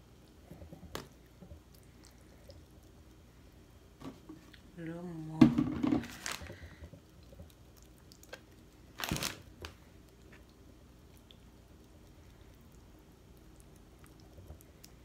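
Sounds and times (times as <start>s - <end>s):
crunchy squish: 6.0s - 15.0s.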